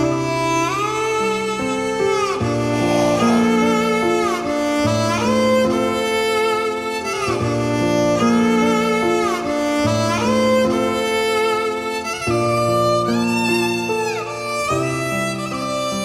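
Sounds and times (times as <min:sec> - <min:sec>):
sustained low string notes: 0:00.0 - 0:15.4
sliding bowed string melody: 0:00.0 - 0:16.0.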